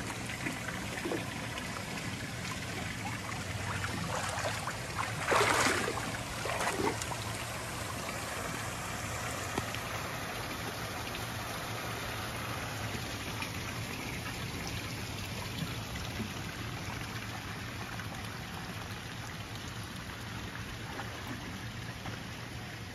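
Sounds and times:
fountain water splashing: 0.0s - 22.9s.

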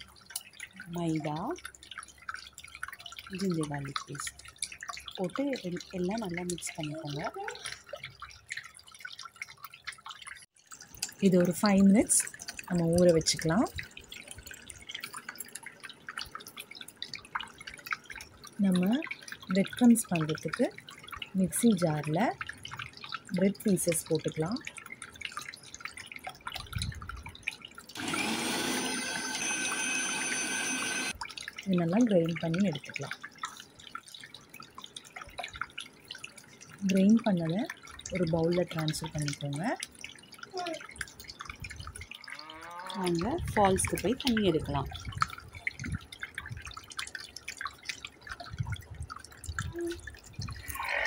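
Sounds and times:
water dripping from fountain: 0.0s - 51.0s
electric grinder motor whining: 28.0s - 31.1s.

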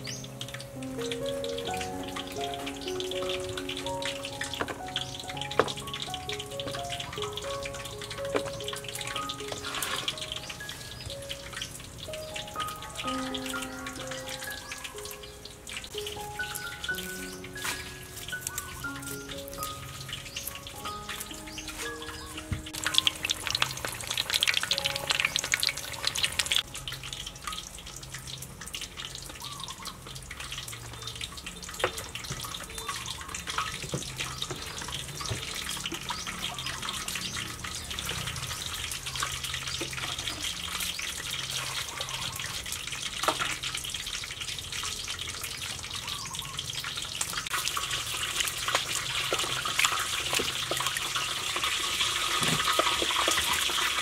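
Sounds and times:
hot oil crackling: 0.0s - 54.0s
water splashing and trickling: 0.0s - 54.0s.

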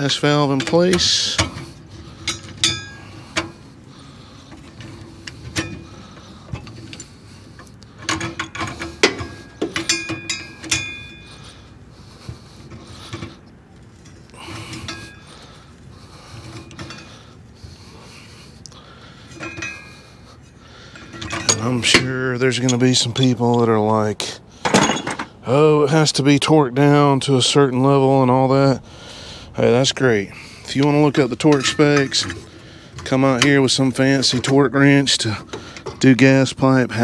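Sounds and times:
pipe wrenches clicking on metal: 0.0s - 11.6s, 12.2s - 15.6s, 16.3s - 17.3s, 18.6s - 20.1s, 20.7s - 23.7s, 30.7s - 37.0s.

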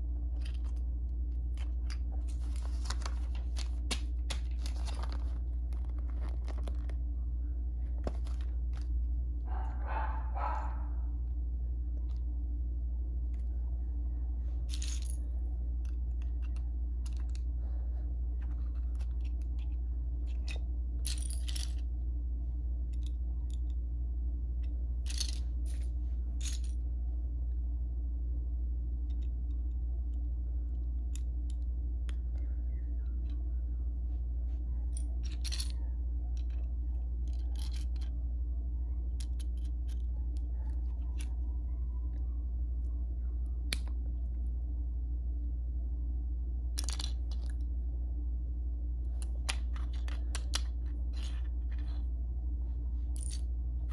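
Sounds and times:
steady low hum: 0.0s - 53.9s
plastic bricks clicking: 49.2s - 51.9s.

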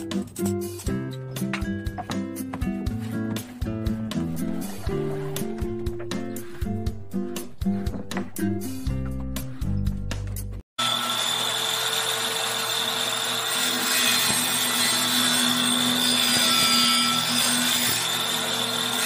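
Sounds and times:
table saw cutting plywood: 10.8s - 19.0s.

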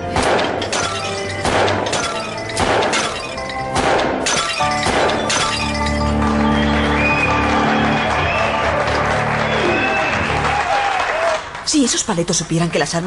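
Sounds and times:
background music: 0.0s - 13.0s
clay plate shattering: 0.2s - 6.2s.

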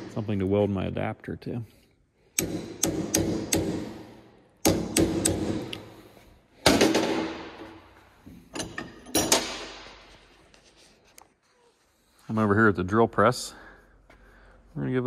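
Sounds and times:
hammer striking metal punch: 2.4s - 5.7s.

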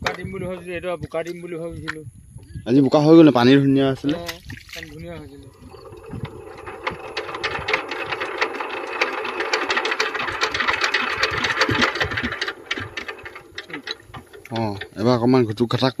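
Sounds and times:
diesel engine cranking clatter: 4.9s - 16.0s.

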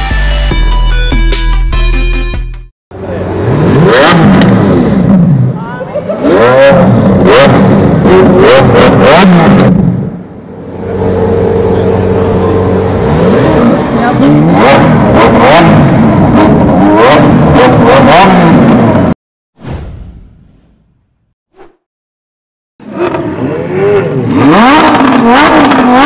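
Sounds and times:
car engine revving: 2.9s - 19.2s, 22.8s - 26.0s.

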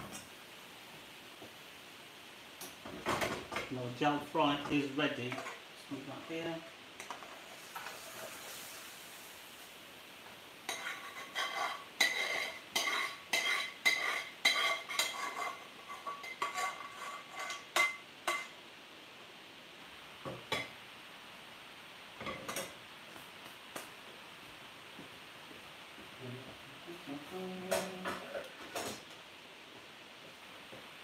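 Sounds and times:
metal spoon scraping frying pan: 10.7s - 18.5s.

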